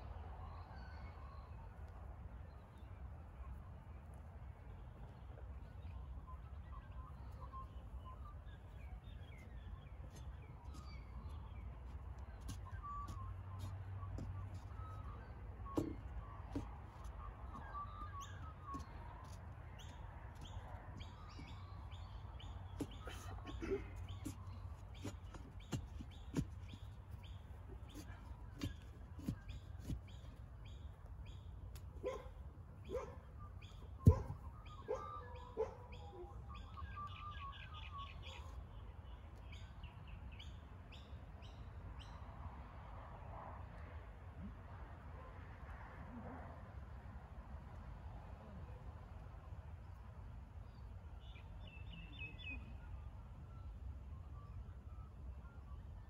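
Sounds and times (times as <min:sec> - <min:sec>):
birds chirping: 0:02.4 - 0:42.2.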